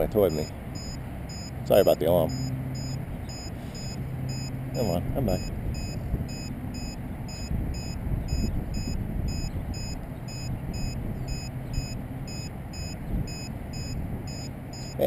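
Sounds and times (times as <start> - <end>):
high-pitched alarm beeps: 0.3 - 15.0
wind rumble on microphone: 2.8 - 15.0.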